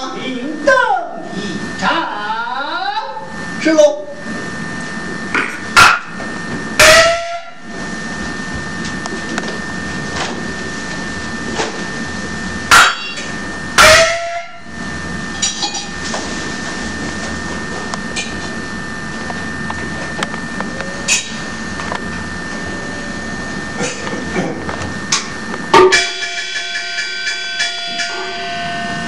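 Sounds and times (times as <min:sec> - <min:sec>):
steady hum: 0:00.0 - 0:29.0
ringing gong stroke: 0:04.2 - 0:09.0, 0:10.4 - 0:19.0, 0:25.0 - 0:29.0.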